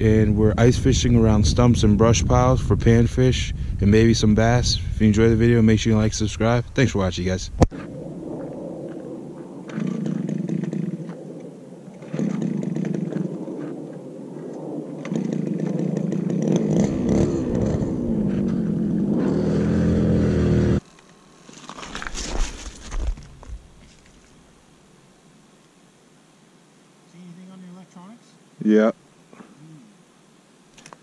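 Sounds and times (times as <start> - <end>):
ice auger engine revving: 16.4 - 20.8.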